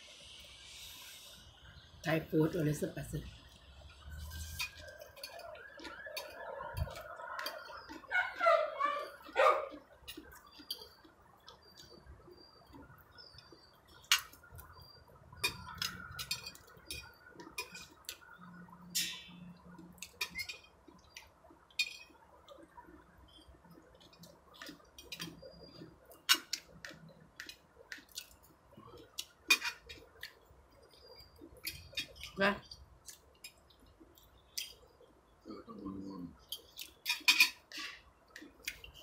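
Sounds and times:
cutlery clinking on plate: 15.4s - 18.0s, 20.0s - 20.8s, 21.8s - 22.2s, 29.5s - 30.4s, 36.5s - 37.8s.

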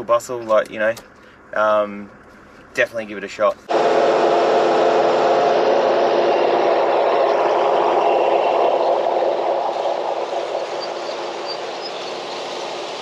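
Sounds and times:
vehicle engine and tyres droning: 3.7s - 13.0s
water washing around wheels: 9.7s - 13.0s.

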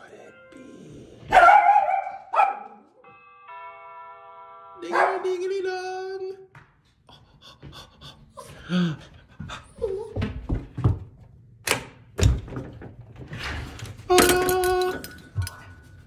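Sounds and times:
dog panting: 7.1s - 10.2s.

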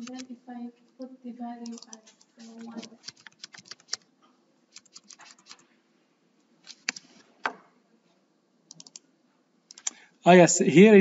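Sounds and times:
keyboard typing: 0.0s - 0.3s, 1.6s - 4.1s, 4.7s - 5.7s, 6.6s - 7.2s, 8.7s - 9.0s, 9.7s - 10.0s.

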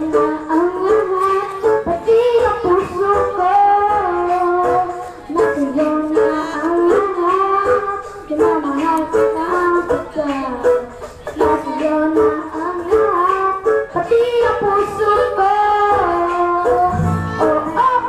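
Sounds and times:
boy singing into microphone: 0.0s - 18.0s
instrumental music with plucked strings: 16.7s - 18.0s.

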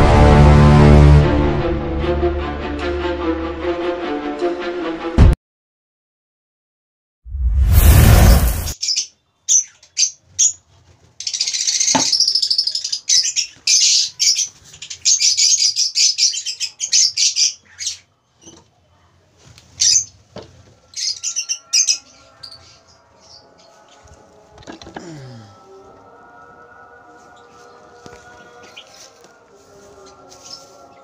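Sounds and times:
lovebirds chirping: 8.8s - 18.6s, 19.7s - 20.2s, 20.8s - 24.4s, 27.1s - 31.0s.

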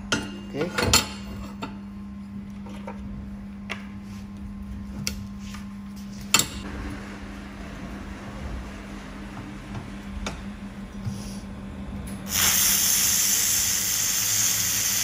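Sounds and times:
laser welding machine hum: 4.5s - 15.0s.

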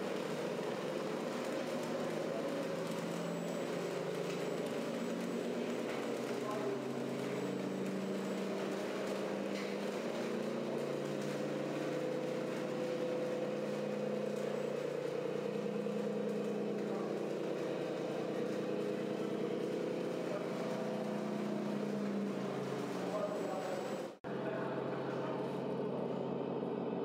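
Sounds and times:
faint voices: 0.0s - 26.4s
simulated diesel engine hum: 0.0s - 27.0s.

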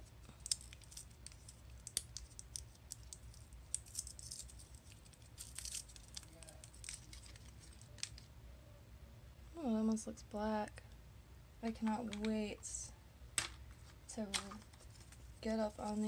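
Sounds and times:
wrapper crinkling: 0.2s - 8.3s.

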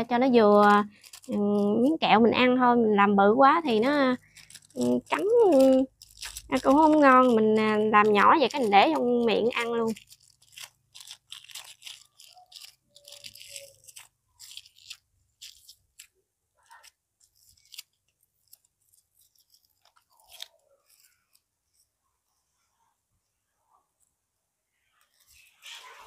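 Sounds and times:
plastic wrapper crinkling: 0.0s - 22.0s.

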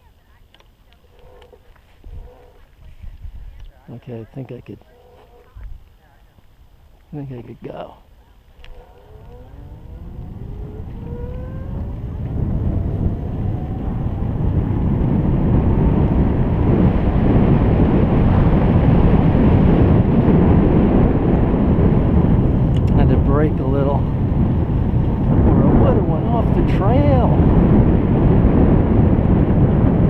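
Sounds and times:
wind rushing over microphone: 0.0s - 30.0s
faint rising whine: 8.2s - 17.2s.

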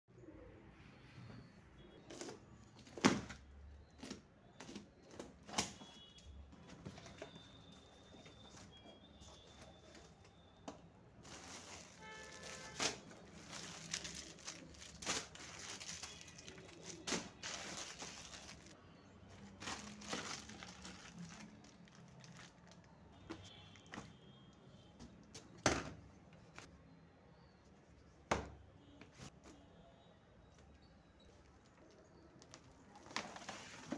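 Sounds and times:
plastic packaging crinkling: 11.2s - 23.0s.

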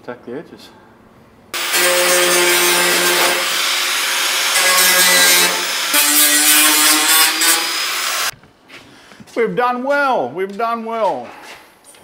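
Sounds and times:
angle grinder cutting sheet metal: 1.6s - 8.3s.

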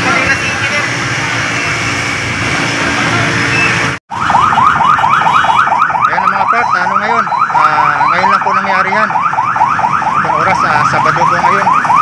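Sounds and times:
traffic and truck engines rumbling: 0.0s - 12.0s
electronic alarm whooping: 3.5s - 12.0s.

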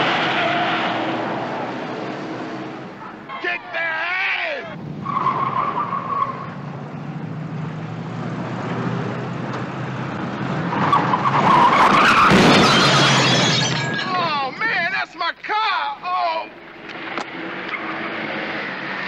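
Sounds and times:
car engines running: 0.0s - 14.6s
tyres squealing: 3.0s - 6.6s, 10.7s - 15.2s.

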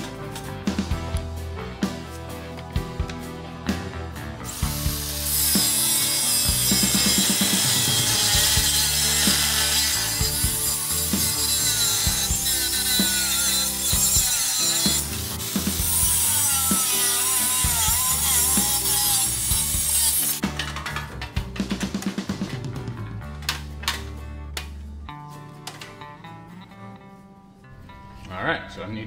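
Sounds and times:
angle grinder cutting steel: 4.5s - 20.5s.

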